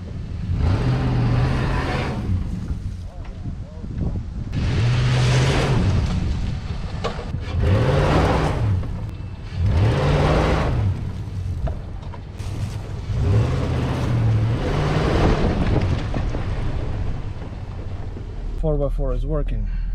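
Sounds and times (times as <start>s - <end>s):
truck engine revving: 0.0s - 2.9s, 4.5s - 18.3s.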